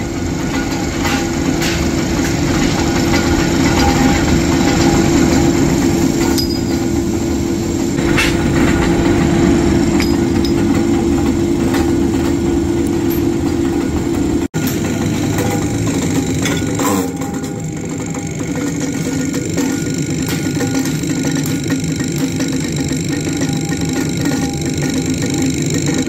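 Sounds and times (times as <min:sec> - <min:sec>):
power press machine hum: 0:00.0 - 0:26.0.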